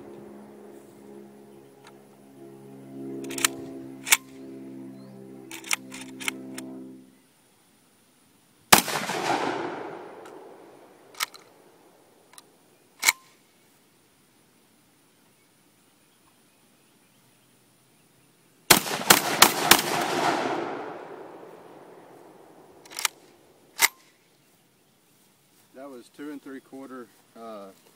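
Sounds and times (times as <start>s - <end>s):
metallic clacks of gun action: 3.2s - 4.4s
shotgun shot with echo: 8.8s - 10.8s, 18.7s - 21.9s.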